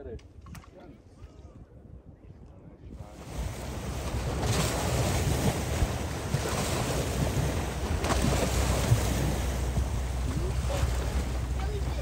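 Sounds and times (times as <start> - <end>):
wind rumble on microphone: 0.0 - 12.0
small waves on rocky shore: 3.0 - 12.0.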